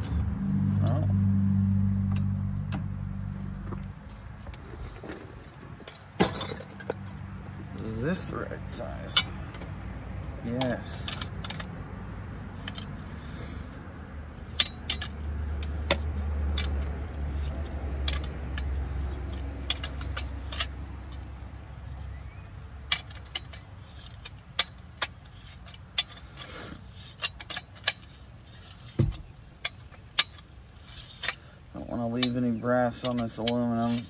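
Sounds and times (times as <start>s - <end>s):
low steady rumble: 0.0s - 34.0s
metal scrap parts clinking: 4.8s - 7.2s.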